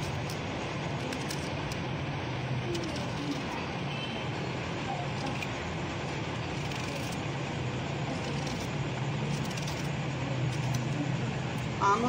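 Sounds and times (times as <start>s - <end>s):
knife scraping mango skin: 6.4s - 7.4s, 8.0s - 11.0s.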